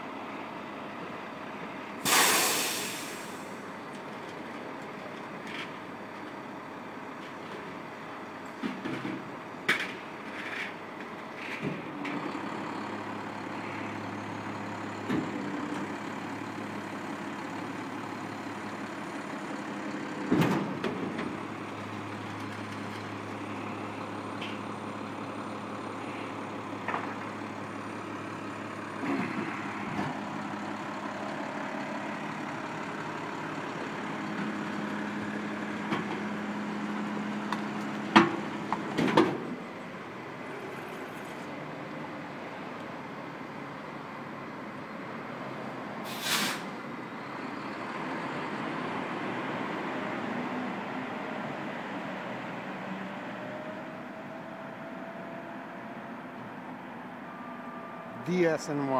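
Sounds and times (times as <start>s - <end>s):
garbage truck diesel engine: 0.0s - 58.9s
refuse clanking and thumping: 20.2s - 21.4s.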